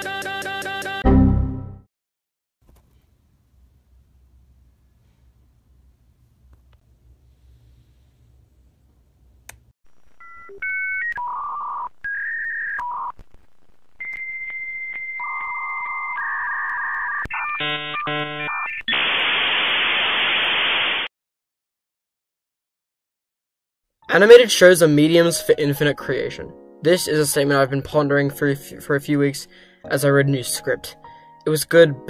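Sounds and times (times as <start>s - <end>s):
dial-up modem tones: 10.0s - 13.2s, 13.9s - 19.5s
loud hiss: 18.9s - 21.1s.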